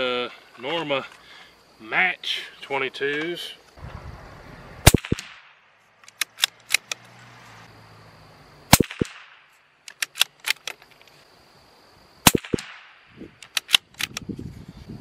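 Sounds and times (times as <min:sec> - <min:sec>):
rifle shots: 0:04.8 - 0:05.6, 0:08.7 - 0:10.6, 0:12.2 - 0:13.0
rifle bolt clicking: 0:06.0 - 0:07.0, 0:09.8 - 0:10.8, 0:13.4 - 0:14.2.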